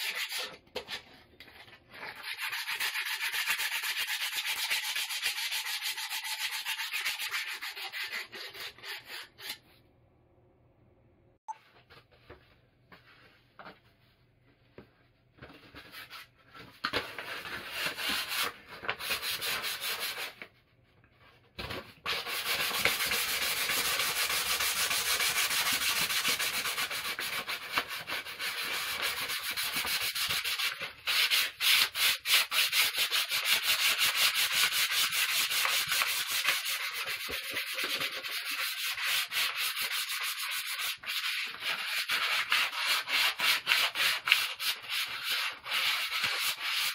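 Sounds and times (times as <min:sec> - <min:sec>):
sandpaper rubbing on wood: 0:22.1 - 0:46.9.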